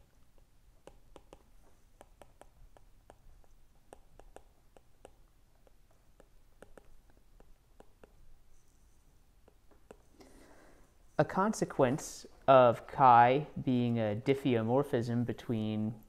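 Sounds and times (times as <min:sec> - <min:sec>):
stylus ticking on glass screen: 0:00.3 - 0:08.2.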